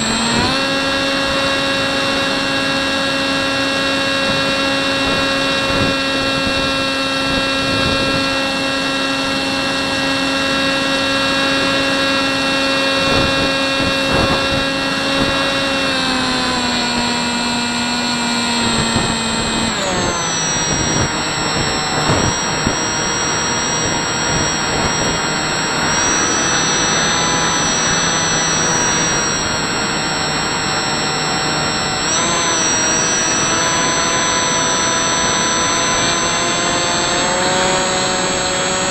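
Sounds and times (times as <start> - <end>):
model plane motor whining: 0.0 - 38.9
wind rush: 4.0 - 16.3, 18.5 - 30.7.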